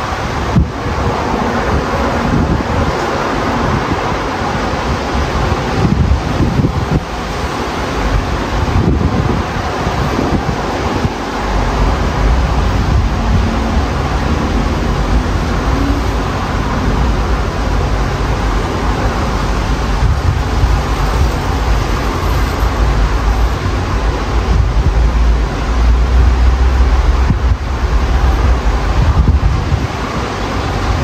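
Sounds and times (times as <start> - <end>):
highway traffic: 0.0 - 31.0
wind buffeting microphone: 0.0 - 31.0
low rumble: 10.4 - 30.1.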